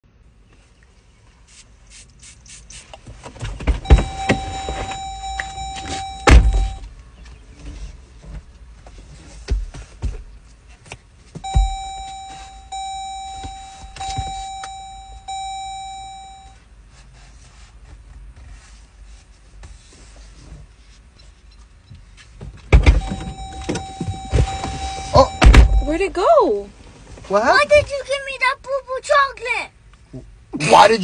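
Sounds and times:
thumps and knocks in car: 0:03.2 - 0:06.8, 0:09.4 - 0:10.4, 0:11.3 - 0:16.3, 0:22.4 - 0:25.9
steady high tone: 0:03.8 - 0:06.8, 0:11.4 - 0:16.6, 0:22.9 - 0:26.2.

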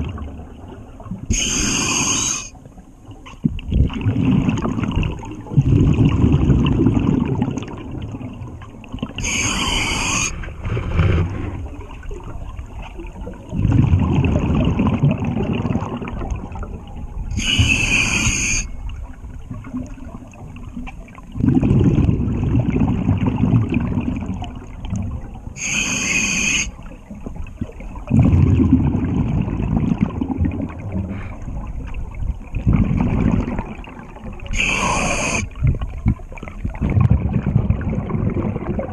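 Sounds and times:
exhaled bubbles rumbling: 0:00.0 - 0:38.9
hissing regulator inhalation: 0:01.3 - 0:02.5, 0:09.2 - 0:10.5, 0:17.4 - 0:18.7, 0:25.6 - 0:26.7, 0:34.5 - 0:35.5.

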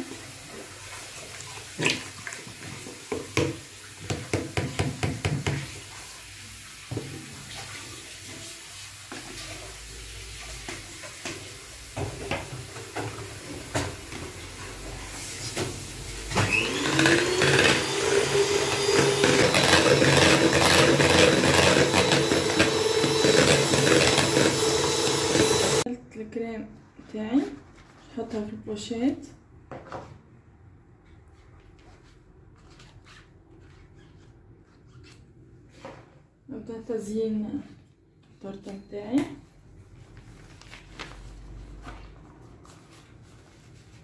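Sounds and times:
electric hand mixer whining: 0:16.2 - 0:25.9
cream pouring: 0:16.6 - 0:25.9.

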